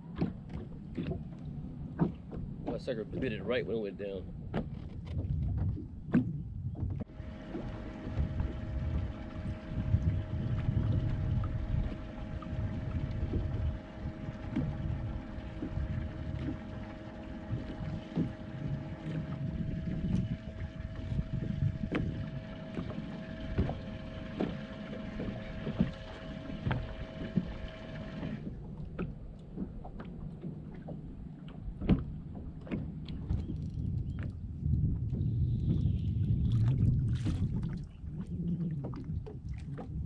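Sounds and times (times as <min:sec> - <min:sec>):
wind buffeting microphone: 0:00.0 - 0:31.1, 0:31.7 - 0:40.0
steady whine: 0:07.0 - 0:31.2.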